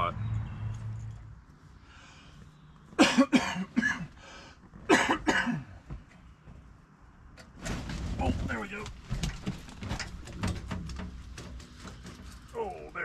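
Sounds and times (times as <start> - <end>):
man coughing: 3.0 - 4.2, 4.9 - 5.8.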